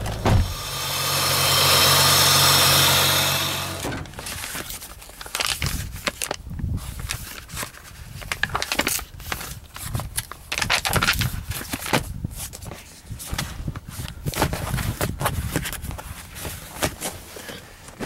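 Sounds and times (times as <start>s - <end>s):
paper pages rustling: 4.1s - 18.0s.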